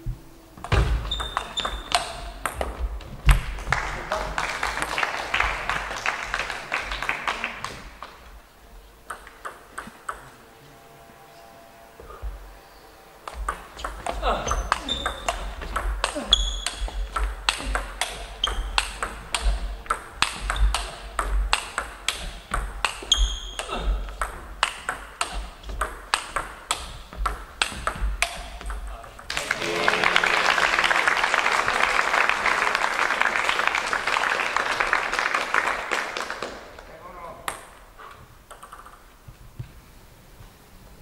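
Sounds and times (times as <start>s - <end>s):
table tennis ball clicking: 1.1s - 2.8s, 9.0s - 10.4s, 13.3s - 28.9s, 38.5s - 39.0s
crowd applauding: 3.4s - 8.4s, 29.3s - 36.9s.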